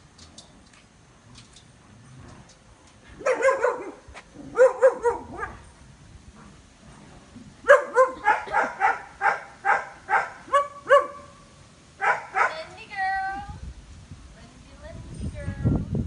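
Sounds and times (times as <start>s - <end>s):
dog barking: 3.2s - 5.6s, 7.6s - 11.3s, 12.0s - 12.6s.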